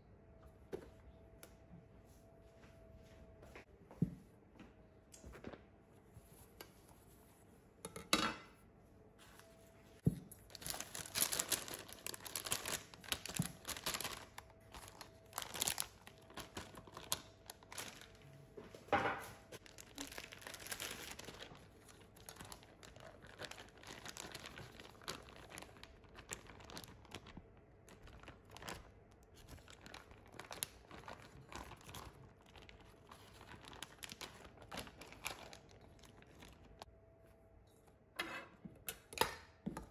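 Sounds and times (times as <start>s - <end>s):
plastic bag crinkling: 10.3s - 18.5s, 19.5s - 36.9s.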